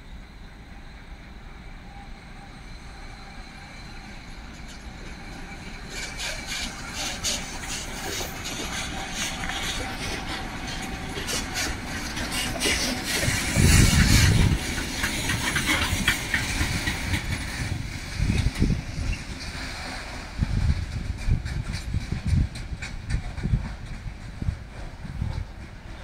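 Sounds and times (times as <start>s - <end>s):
train wheels rumbling over joints: 0.0s - 26.0s.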